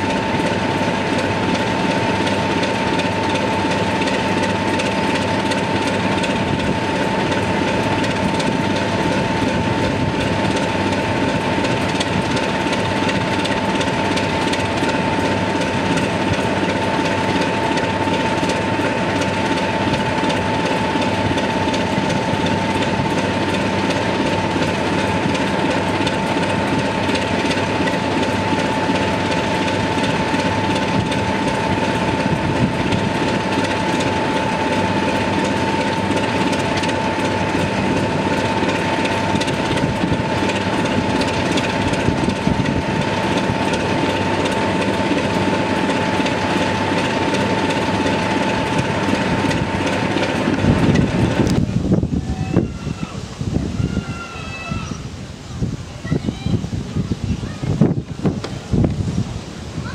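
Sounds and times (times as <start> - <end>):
constant high whine: 0.0 - 59.9
diesel locomotive idling: 0.0 - 59.9.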